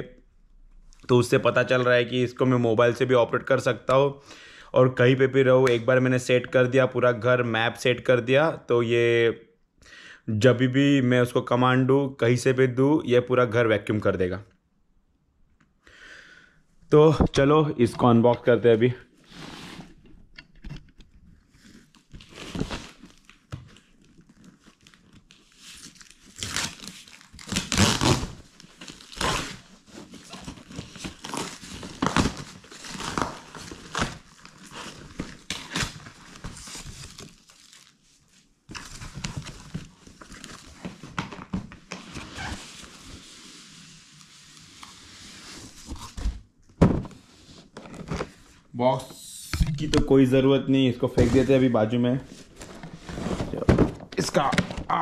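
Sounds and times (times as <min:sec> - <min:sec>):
cardboard crinkling and scraping: 0:20.8 - 0:48.7, 0:51.0 - 0:55.0
packing tape peeling and tearing: 0:24.2 - 0:37.9.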